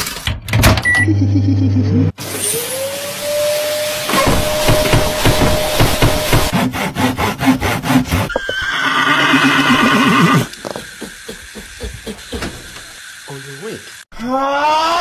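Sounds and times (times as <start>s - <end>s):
horse whinny: 8.3s - 10.5s.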